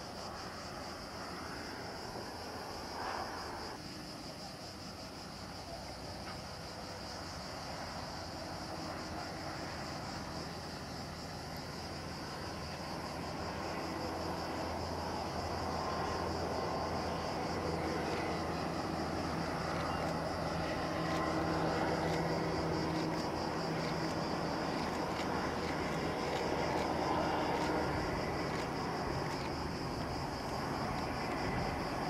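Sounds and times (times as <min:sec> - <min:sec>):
locomotive engine droning: 0:06.4 - 0:32.0.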